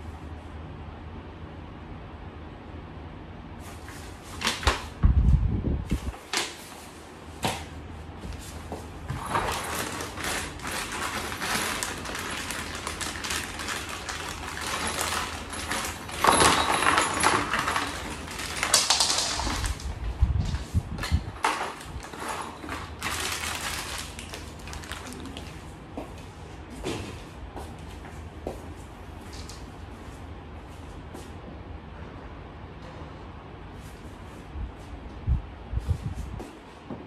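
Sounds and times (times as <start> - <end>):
packaging rustling: 9.2 - 25.6.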